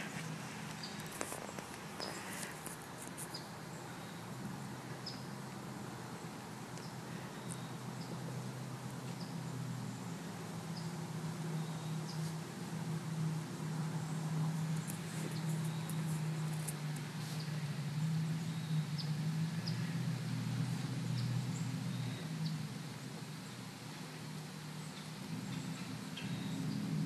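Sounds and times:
animal gnawing clicks and scrapes: 0:00.0 - 0:03.4, 0:14.8 - 0:17.4
steady low hum: 0:00.0 - 0:27.0.

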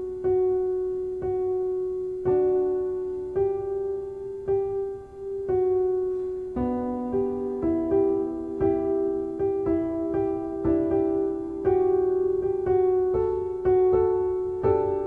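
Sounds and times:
piano notes: 0:00.0 - 0:15.0.

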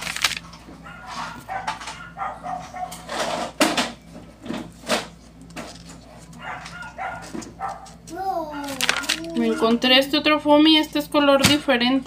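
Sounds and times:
dog barking: 0:00.8 - 0:03.1, 0:06.4 - 0:08.8.

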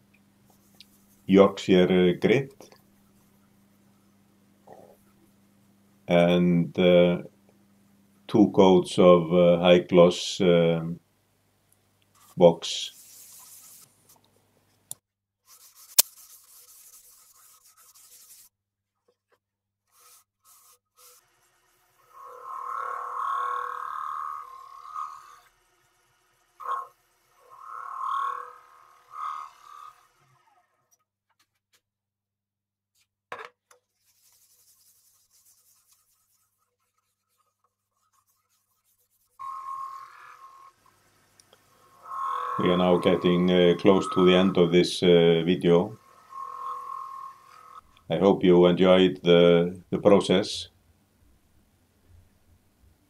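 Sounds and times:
cloth rubbing on wooden bowl: 0:12.2 - 0:14.0, 0:15.5 - 0:18.5, 0:33.9 - 0:39.4.

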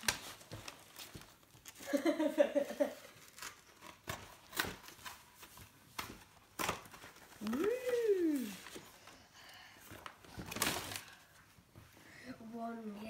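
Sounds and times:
paper envelope rustling: 0:00.0 - 0:02.0, 0:02.6 - 0:09.2.

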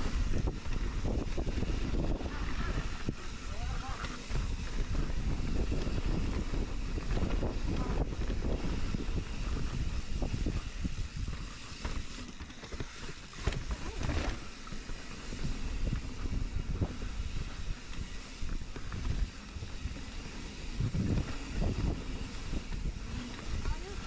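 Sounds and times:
wind buffeting microphone: 0:00.0 - 0:12.1, 0:13.1 - 0:24.0
continuous rumble: 0:00.0 - 0:24.0
bike knocks and rattles: 0:11.1 - 0:16.1.

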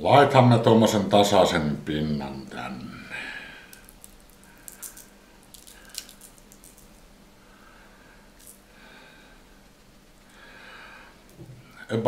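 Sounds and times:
spice shaker rattling: 0:03.7 - 0:07.1, 0:08.4 - 0:08.7.

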